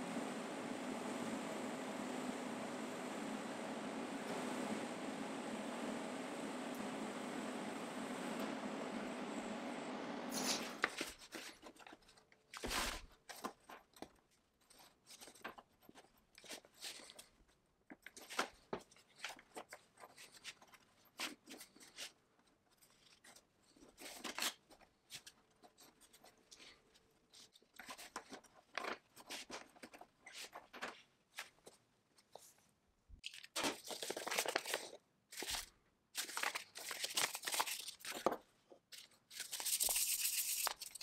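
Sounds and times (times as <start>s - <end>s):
scrapes and clicks of small parts: 10.4s - 41.0s.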